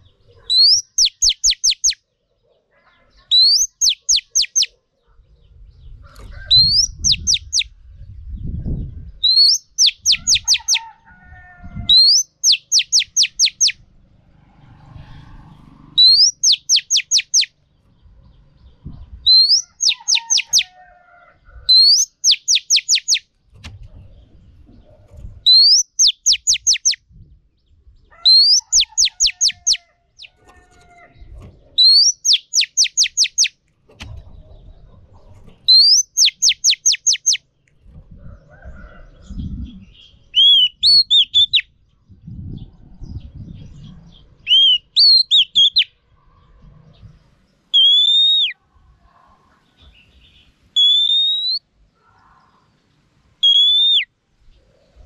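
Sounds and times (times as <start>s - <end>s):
bird calling whistle phrase: 40.4s - 41.6s, 44.5s - 45.9s, 47.8s - 48.6s, 50.8s - 51.6s, 53.4s - 54.1s.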